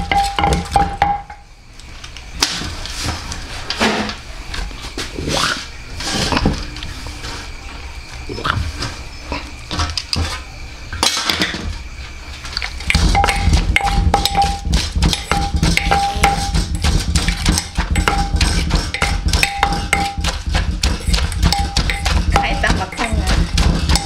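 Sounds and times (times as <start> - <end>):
utensils knocking on pots and pans: 0.0 - 1.4, 12.8 - 24.0
steady low hum: 0.0 - 24.0.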